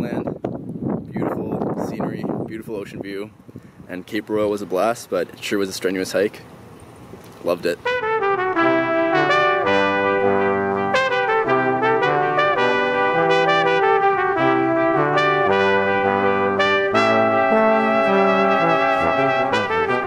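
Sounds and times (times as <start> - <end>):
brass chords music: 7.8 - 20.0.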